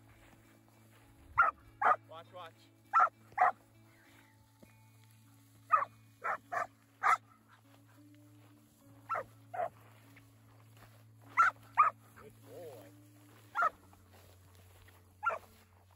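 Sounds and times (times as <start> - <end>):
puppy barking: 1.4 - 2.0, 2.9 - 3.6, 5.7 - 7.3, 9.1 - 9.8, 11.4 - 12.0, 13.5 - 13.9, 15.2 - 15.5.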